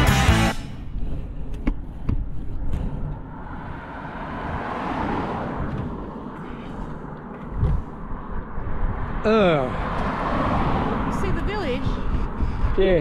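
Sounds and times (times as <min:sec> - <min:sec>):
wind rumble on microphone: 0:00.8 - 0:13.0
car driving past: 0:02.7 - 0:13.0.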